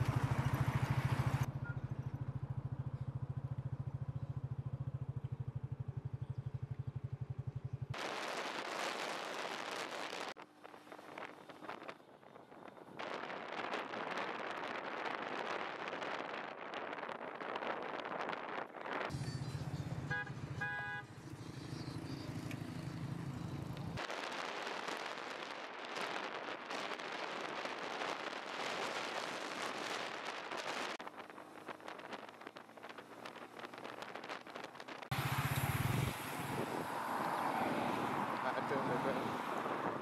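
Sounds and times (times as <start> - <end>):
car engine rumble: 0.0 - 8.0, 15.0 - 24.0, 27.8 - 40.0
wind and road noise: 0.0 - 40.0
car horn toots: 19.1 - 21.2.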